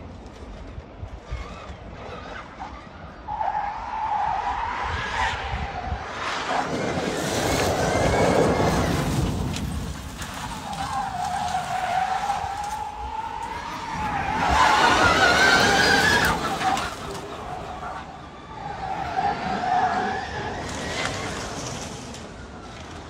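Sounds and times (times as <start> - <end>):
tyre noise rushing: 5.4 - 18.0.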